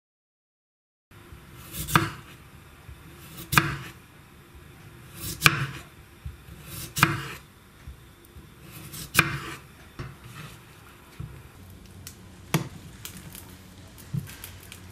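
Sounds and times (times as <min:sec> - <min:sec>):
knife slicing potato: 0:01.4 - 0:04.0, 0:04.9 - 0:10.7.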